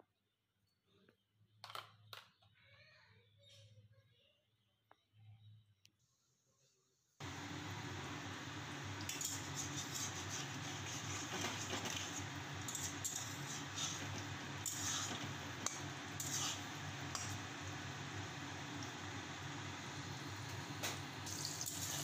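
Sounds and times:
dumplings sizzling in hot oil: 0:07.2 - 0:22.0
metal spatula scraping pan: 0:09.1 - 0:17.4.

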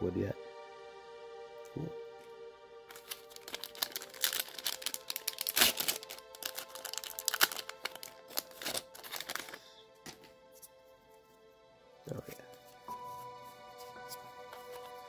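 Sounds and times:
background music: 0:00.0 - 0:15.0
foil wrapper crinkling: 0:02.9 - 0:10.3.

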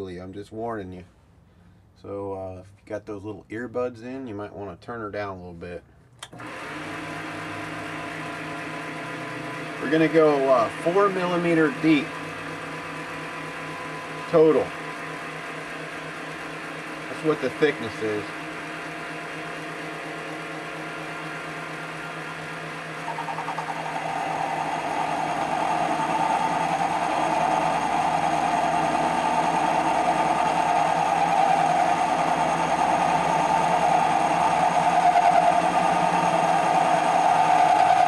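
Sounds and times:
lathe humming: 0:06.3 - 0:38.0.

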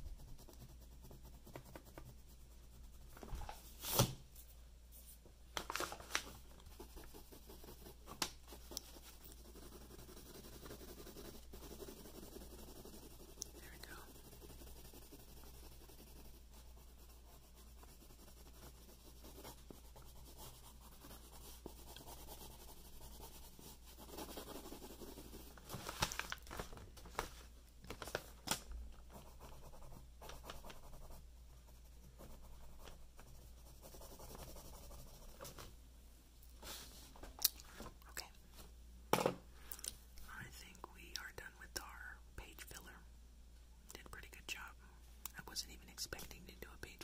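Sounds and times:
pen scratching on paper: 0:00.0 - 0:04.0, 0:06.6 - 0:25.6, 0:29.1 - 0:35.6.

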